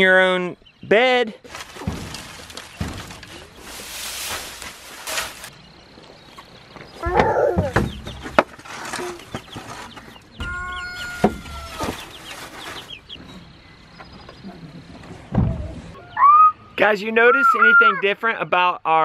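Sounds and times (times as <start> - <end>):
chickens clucking and squawking: 7.0 - 16.7.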